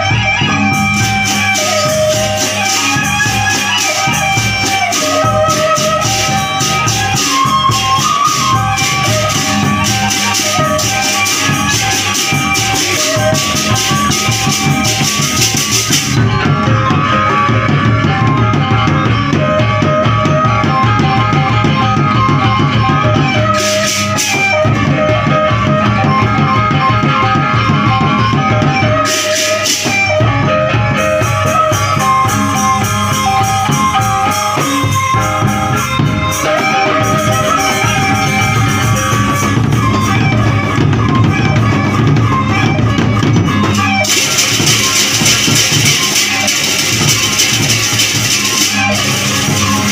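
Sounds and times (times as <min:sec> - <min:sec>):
bamboo flute melody: 0:00.0 - 0:49.9
barrel drums beating: 0:00.0 - 0:49.9
cymbal crashes: 0:23.5 - 0:24.6, 0:43.7 - 0:49.9.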